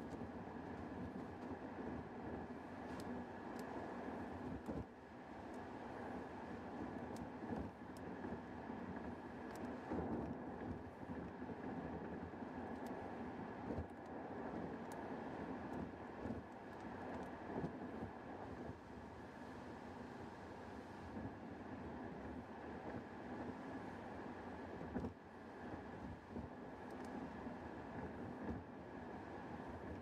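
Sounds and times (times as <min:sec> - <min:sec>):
faint irregular ticks: 0:00.0 - 0:01.6, 0:02.8 - 0:08.3, 0:08.9 - 0:11.3, 0:12.6 - 0:18.2, 0:26.3 - 0:28.6.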